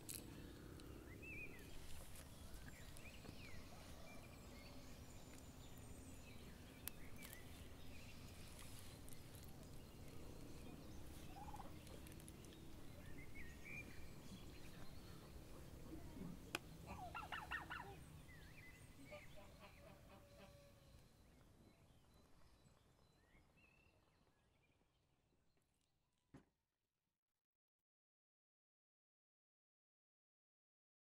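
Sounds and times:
faint bird calls: 6.9 - 23.3.

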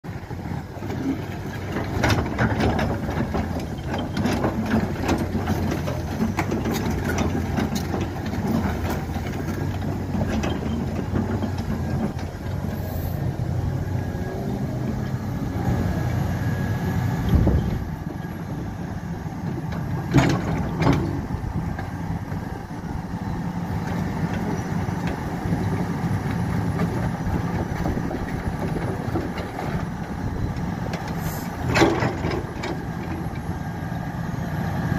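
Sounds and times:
excavator diesel engine running: 0.1 - 34.9.

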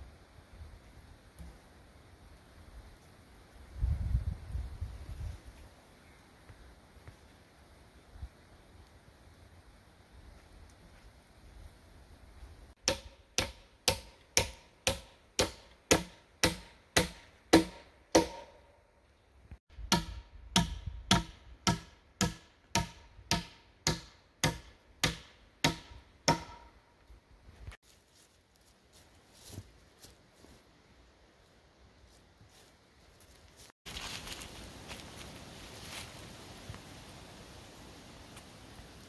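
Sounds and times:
hammer driving a nail into a log: 12.8 - 18.6, 19.9 - 26.7.

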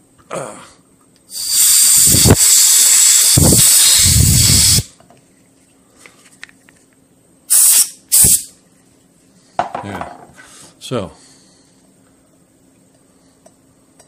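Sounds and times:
compressed air hissing: 1.3 - 4.9, 7.5 - 8.5.

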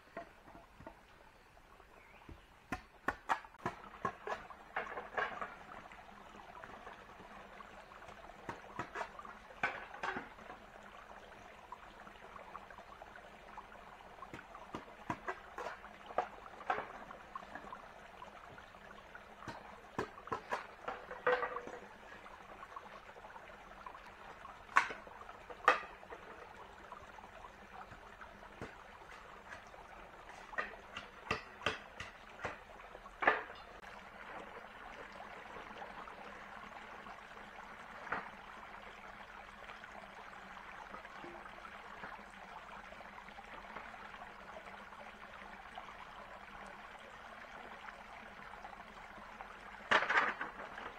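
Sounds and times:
sharp knocks and clicks: 30.5 - 33.7.

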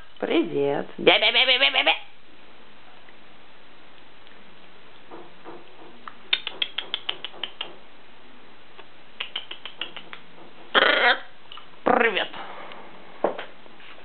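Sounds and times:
macaw clicking: 6.3 - 7.8, 9.2 - 10.3.

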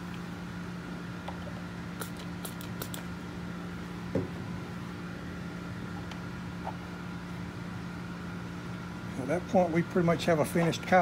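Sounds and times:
steady background hum: 0.0 - 11.0
soft knock: 4.1 - 4.4.

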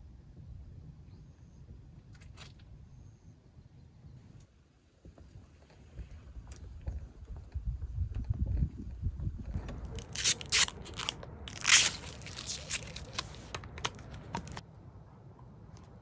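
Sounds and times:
crunching and crackling: 9.6 - 14.6.

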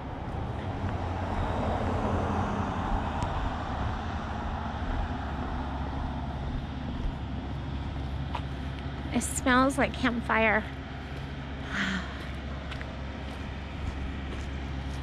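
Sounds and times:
car passing: 0.0 - 10.1.

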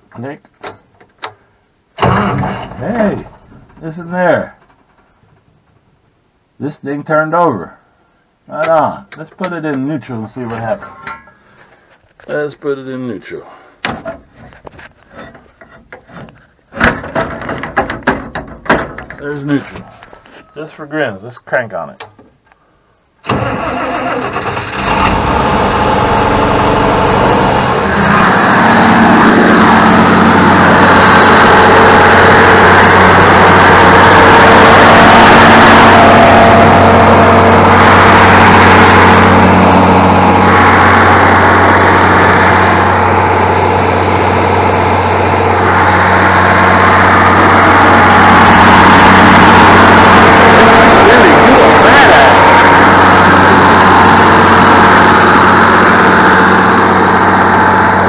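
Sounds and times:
diesel tractor engine running: 0.0 - 5.7, 23.2 - 58.0
starter motor cranking: 23.2 - 25.4.

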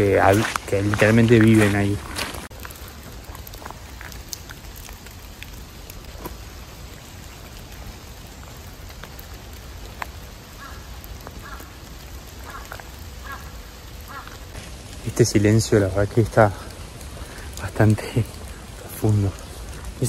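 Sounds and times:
drops ticking on leaves: 0.0 - 20.0
rain falling on trees: 0.0 - 20.0
crow cawing: 10.5 - 14.5.

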